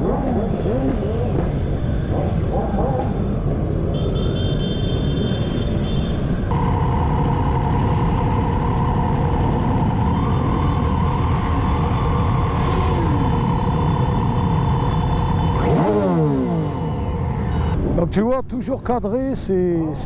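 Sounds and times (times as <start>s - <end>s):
motorcycle engine revving: 0.0s - 3.8s, 6.5s - 17.3s
many motorcycle engines droning: 0.0s - 20.0s.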